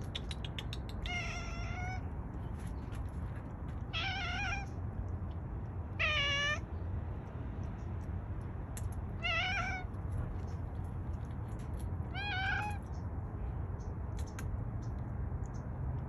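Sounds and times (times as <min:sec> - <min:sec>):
cat meowing: 0:01.0 - 0:02.1, 0:03.9 - 0:04.8, 0:05.9 - 0:06.7, 0:09.2 - 0:10.0, 0:12.1 - 0:12.9.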